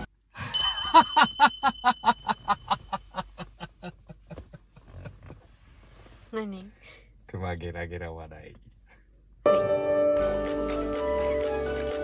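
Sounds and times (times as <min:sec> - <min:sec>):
person laughing: 0:00.5 - 0:05.1.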